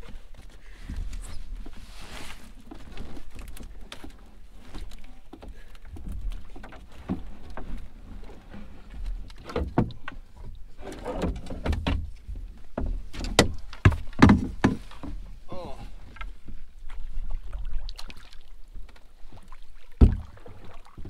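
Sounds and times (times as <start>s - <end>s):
knocks against canoe hull: 11.1s - 15.3s, 20.0s - 20.4s.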